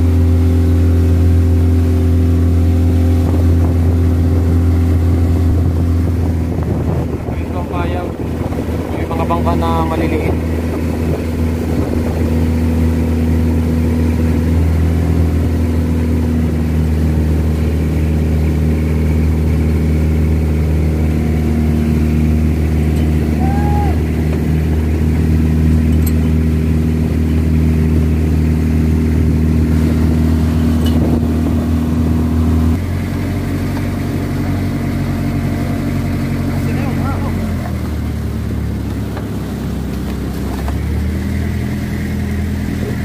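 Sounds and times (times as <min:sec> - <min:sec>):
boat engine running: 0:00.0 - 0:43.0
water rushing along hull: 0:00.0 - 0:43.0.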